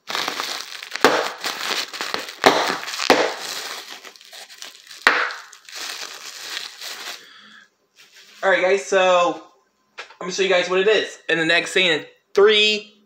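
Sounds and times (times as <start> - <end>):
plastic packaging crinkling: 0.0 - 7.4.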